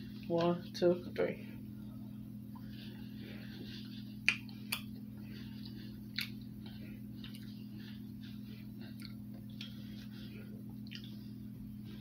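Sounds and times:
steady low hum: 0.0 - 12.0
people chewing chocolate: 3.5 - 11.4.

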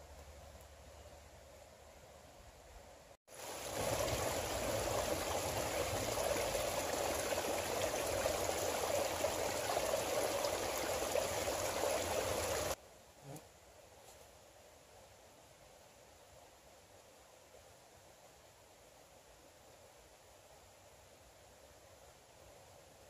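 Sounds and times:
creek water flowing over stones: 3.3 - 12.8.

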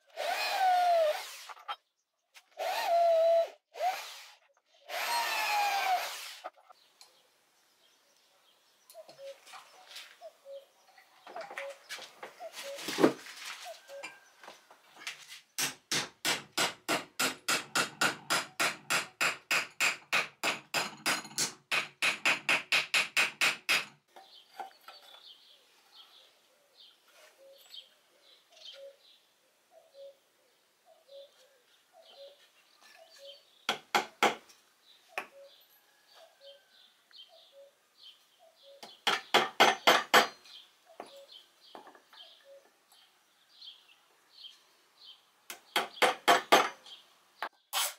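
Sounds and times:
faint bird calling: 11.4 - 13.0, 26.2 - 33.4, 42.2 - 42.7
hammer tapping nails into wood: 15.6 - 24.0.

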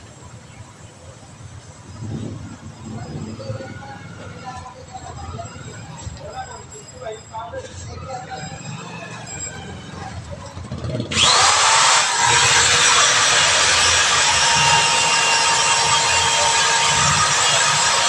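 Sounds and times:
electric drill whining: 11.1 - 18.0.

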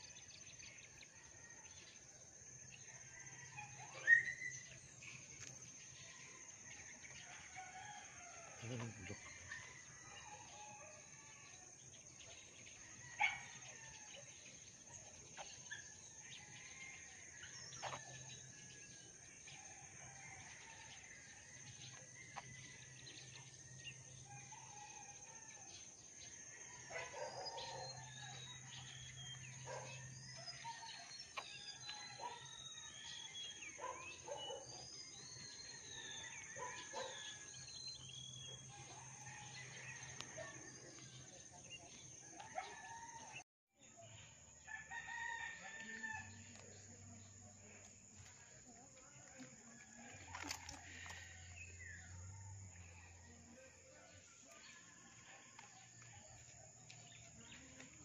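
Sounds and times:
bird calls and chirps: 3.3 - 6.4, 14.9 - 19.1, 26.9 - 40.4.

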